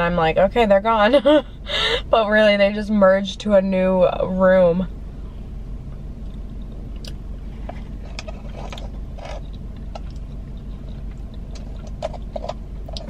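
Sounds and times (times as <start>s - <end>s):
low car cabin hum: 0.0s - 13.0s
plastic spoon scraping in cup: 7.6s - 9.5s.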